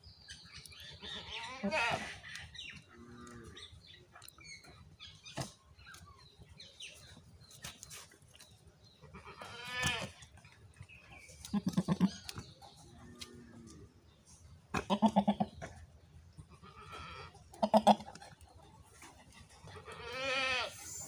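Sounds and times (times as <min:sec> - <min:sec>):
goat bleating: 0:01.0 - 0:02.2, 0:09.1 - 0:10.2, 0:14.8 - 0:15.5, 0:16.5 - 0:18.1, 0:19.7 - 0:20.9
goat grunting: 0:11.4 - 0:15.8, 0:16.5 - 0:18.5.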